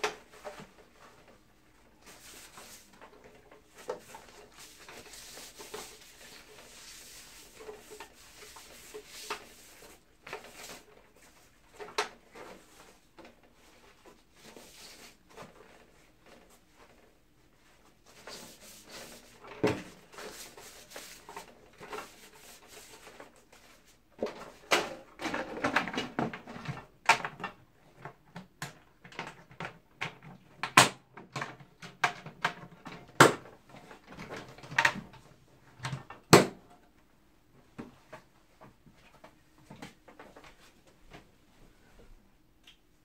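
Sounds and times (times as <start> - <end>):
plastic cover rustling and scraping: 0.0 - 28.2.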